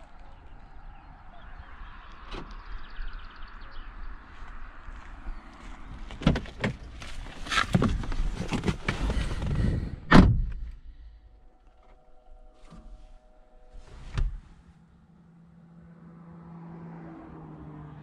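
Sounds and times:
car door closing thud: 0:10.1 - 0:10.7.

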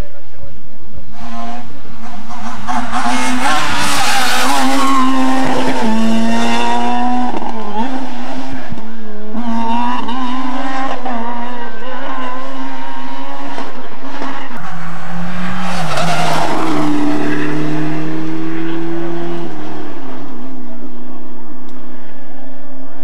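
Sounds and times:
rally car engines revving: 0:00.0 - 0:23.0.

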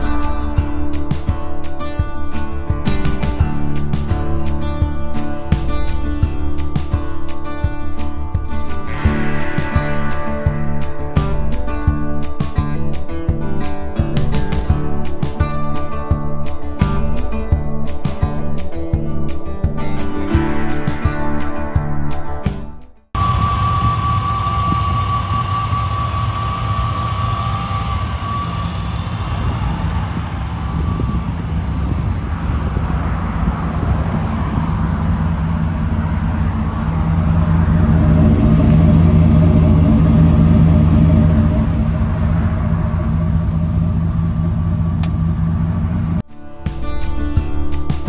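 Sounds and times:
thin whine: 0:00.0 - 0:15.2, 0:19.4 - 0:46.3
pickup truck engine idling: 0:34.2 - 0:46.2.

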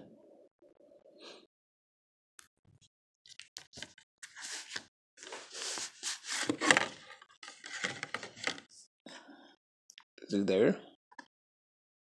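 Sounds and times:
cardboard rustling and scraping: 0:03.8 - 0:08.7.

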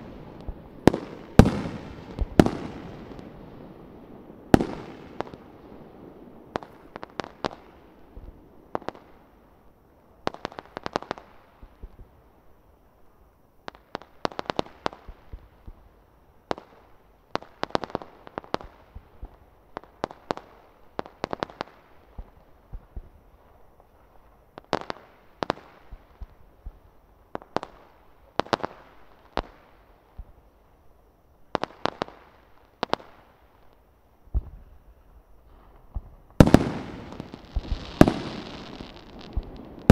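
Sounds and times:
fireworks bangs and cracks: 0:00.0 - 0:09.2, 0:35.4 - 0:39.9.

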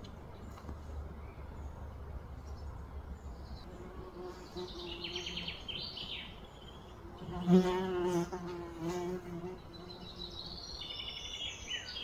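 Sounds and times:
flying insect buzzing: 0:07.0 - 0:10.4.

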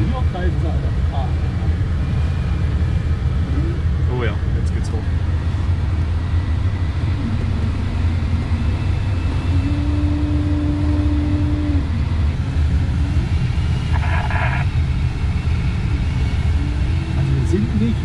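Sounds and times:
steady low tone: 0:00.6 - 0:17.4
air rushing past cockpit: 0:07.2 - 0:17.2
faint tones: 0:13.0 - 0:14.7.

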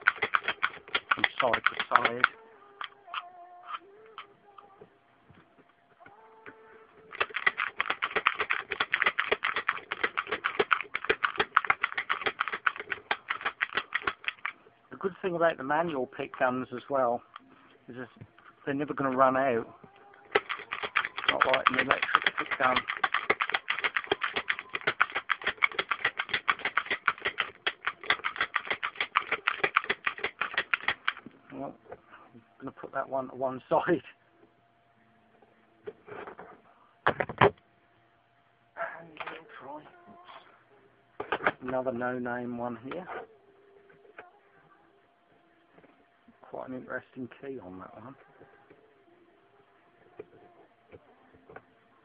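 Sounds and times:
sharp metallic clicks: 0:00.0 - 0:03.0.

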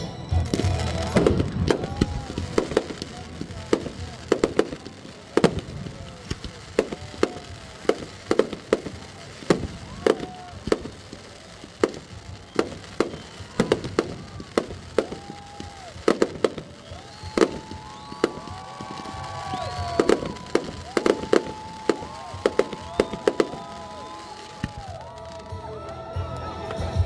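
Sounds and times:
fireworks bangs: 0:00.0 - 0:25.6.

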